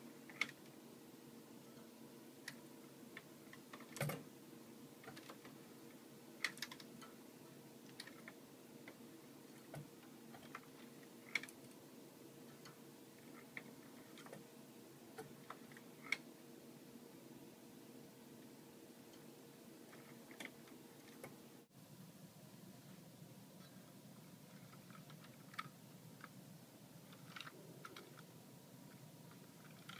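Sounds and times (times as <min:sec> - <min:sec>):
faint steady hum: 0:00.0 - 0:29.9.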